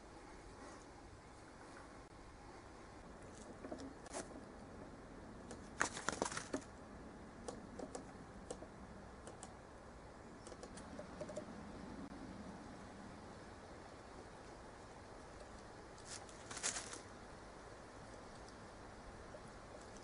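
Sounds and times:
faint clicks and ticks: 7.4s - 9.6s, 10.3s - 11.8s, 14.3s - 16.4s, 18.0s - 20.0s
outdoor hiss: 11.5s - 20.0s.

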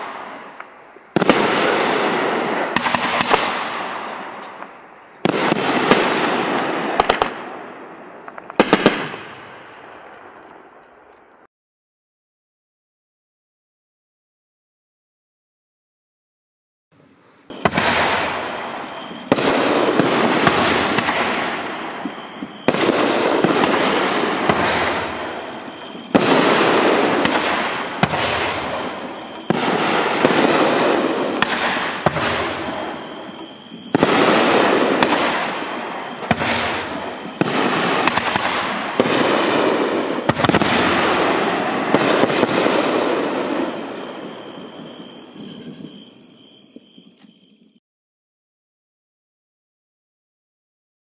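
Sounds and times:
firework shells bursting: 17.5s - 44.8s
firework hiss: 17.5s - 46.1s.

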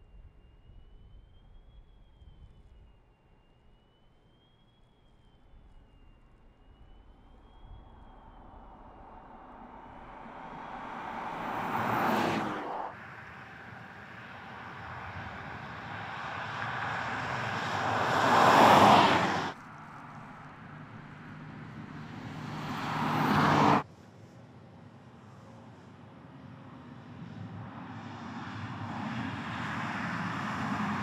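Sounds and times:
car driving by: 8.1s - 23.8s.

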